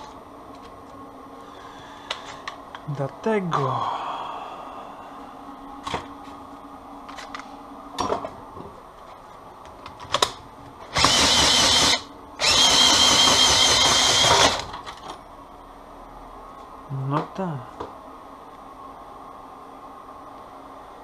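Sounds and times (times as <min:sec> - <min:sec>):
cordless drill motor whine: 0:10.9 - 0:14.7.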